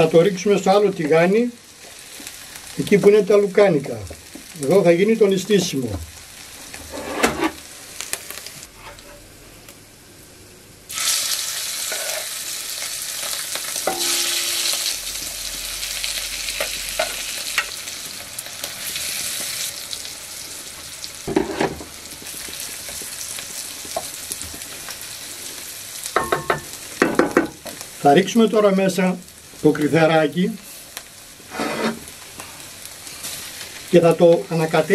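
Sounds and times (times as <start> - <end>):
vegetables sizzling in oil: 0.0 - 34.9
spoon scraping and knocking pans: 13.9 - 14.6.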